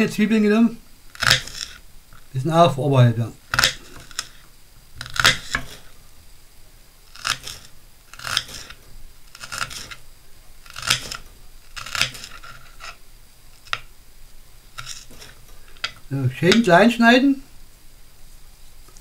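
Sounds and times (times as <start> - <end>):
knife slicing onion on board: 1.2 - 1.8, 3.5 - 4.4, 5.0 - 5.9, 7.1 - 10.0, 10.6 - 13.0, 14.8 - 16.7.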